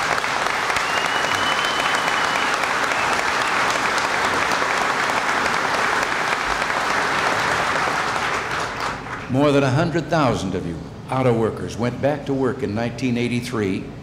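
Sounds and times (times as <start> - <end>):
crowd applauding: 0.0 - 9.6.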